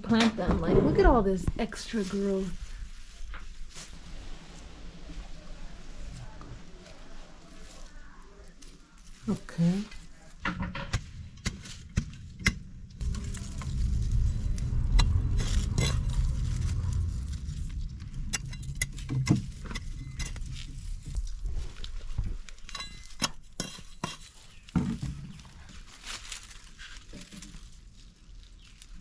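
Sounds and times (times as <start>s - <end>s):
hand hoe scraping dry soil: 11.0s - 24.7s.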